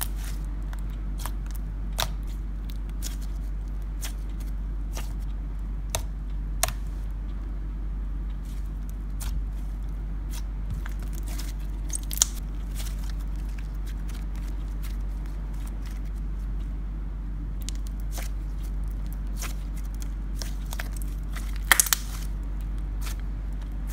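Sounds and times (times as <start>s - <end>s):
steady low hum: 0.0s - 23.9s
slime sticky clicks and pops: 11.9s - 12.4s, 21.6s - 22.2s.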